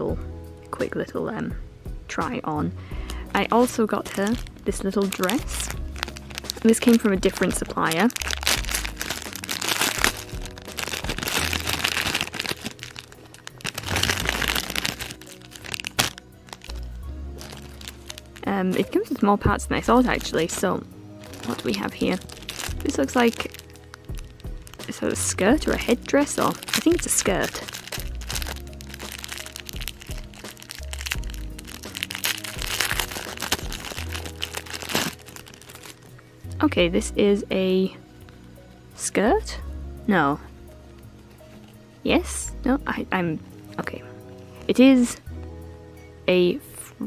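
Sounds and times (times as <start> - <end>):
soft background music: 0.0 - 47.0
cellophane and tissue paper crinkling: 3.9 - 16.8, 17.4 - 19.1, 19.8 - 20.6, 21.2 - 36.1.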